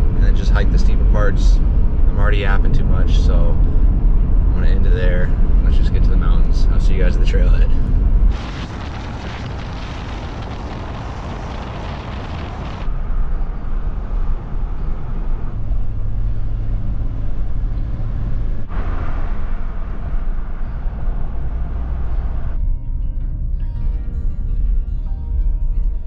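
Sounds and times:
car road and wind noise: 0:00.0 - 0:26.0
steady low hum: 0:00.0 - 0:26.0.

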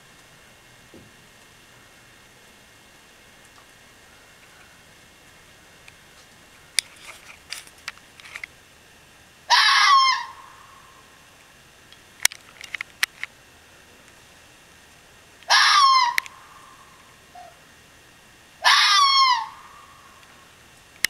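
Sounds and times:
fox screeching: 0:09.5 - 0:11.1, 0:15.5 - 0:17.6, 0:18.6 - 0:20.2.

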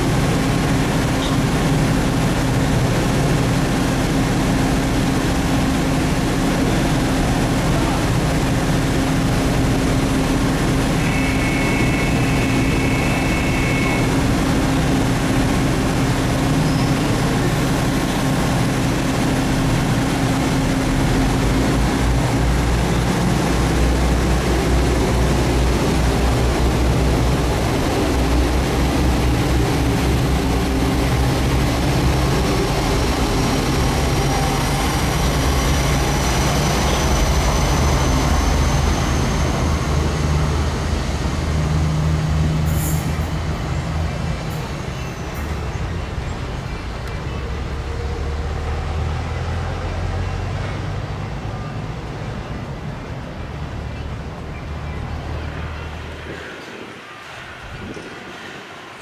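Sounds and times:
jet engines rushing drone: 0:00.0 - 0:51.0, 0:51.7 - 0:59.0.

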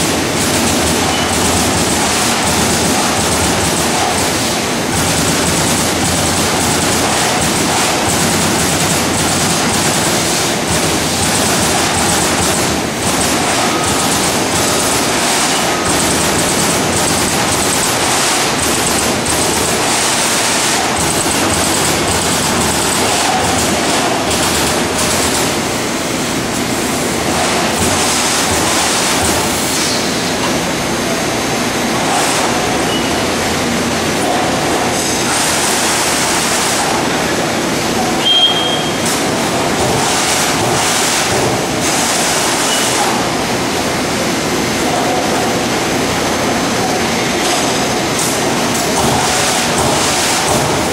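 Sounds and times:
punch press clattering: 0:00.0 - 0:26.0, 0:48.8 - 0:50.9
machine running noise: 0:00.0 - 0:50.9
short high chirp: 0:38.2 - 0:39.0.

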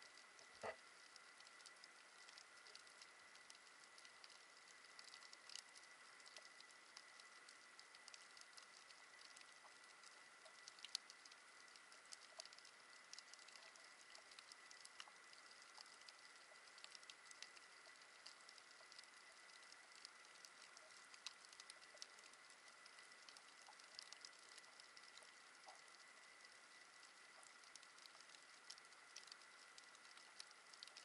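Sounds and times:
steady hiss: 0:00.0 - 0:31.0
underwater reef crackle: 0:00.0 - 0:31.0.

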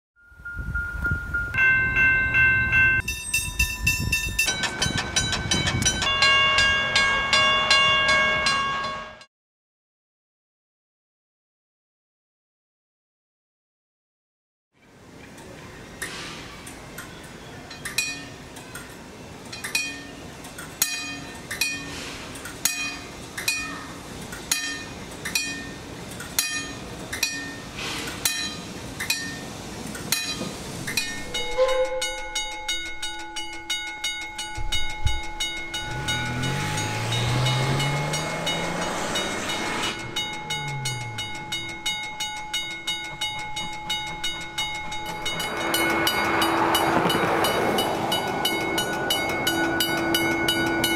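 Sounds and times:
crossing signal bell striking slowly: 0:00.2 - 0:09.3, 0:17.2 - 0:50.9
level crossing bell ringing rapidly: 0:00.3 - 0:09.3, 0:31.0 - 0:50.9
low hum rising and falling: 0:34.7 - 0:50.9.

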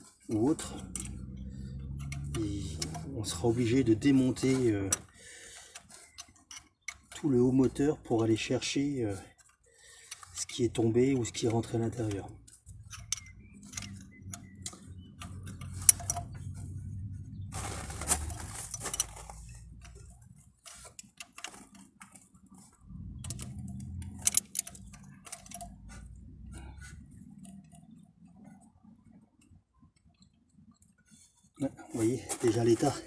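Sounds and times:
socket ratchet clicking: 0:00.8 - 0:03.2, 0:11.3 - 0:16.6, 0:23.2 - 0:28.0
metal scraping: 0:05.8 - 0:28.0
low rumble: 0:12.9 - 0:20.2.

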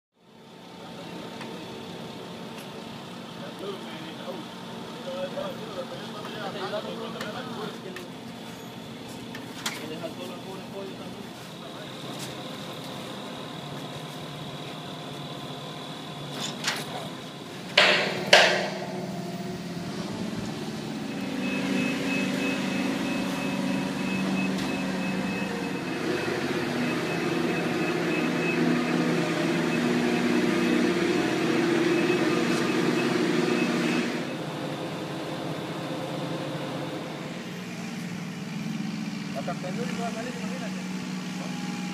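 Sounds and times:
crane engine and hoist running: 0:00.2 - 0:41.9
sharp metal clanks: 0:17.8 - 0:21.2
high steady tone: 0:17.8 - 0:30.9.

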